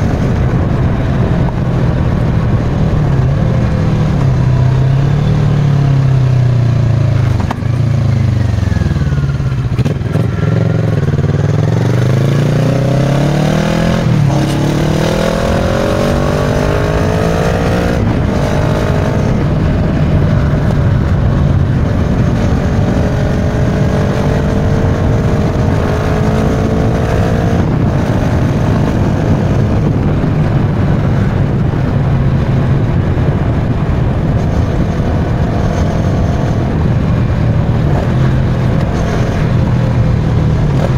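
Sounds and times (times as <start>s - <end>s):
motorcycle engine revving: 0.0s - 40.9s
gear change: 13.8s - 40.9s.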